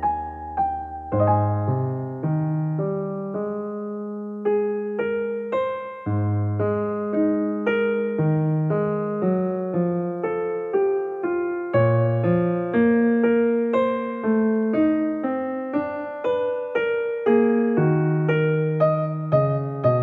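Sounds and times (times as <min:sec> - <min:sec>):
gentle piano melody: 0:00.0 - 0:20.0.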